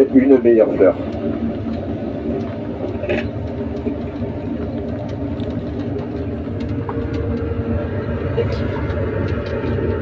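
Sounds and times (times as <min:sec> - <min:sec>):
road train engine rumble: 0:00.0 - 0:10.0.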